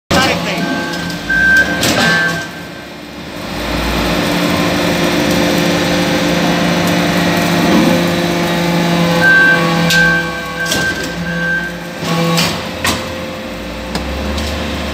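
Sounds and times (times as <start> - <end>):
high-pitched tone: 0.1 - 2.9, 9.0 - 12.0
hydraulic press humming and whirring: 0.1 - 14.9.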